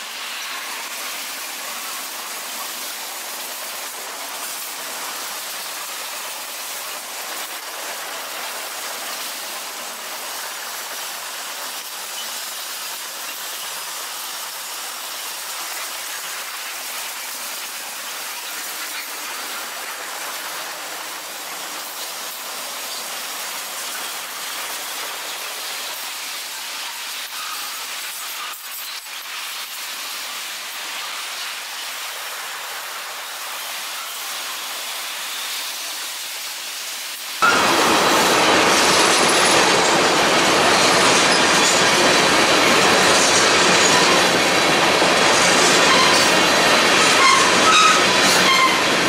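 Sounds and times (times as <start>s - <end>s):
freight car wheels on rail: 37.4s - 49.0s.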